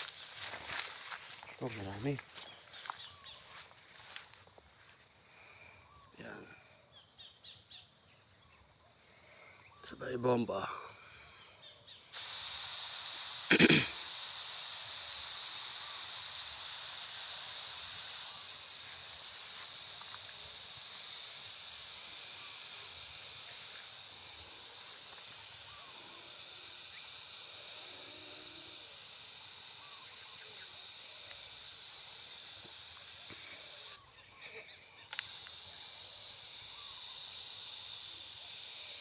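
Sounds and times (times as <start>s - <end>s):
pressure sprayer hissing: 0.0s - 4.2s, 12.1s - 34.0s, 35.1s - 39.0s
insect chirps: 0.0s - 39.0s.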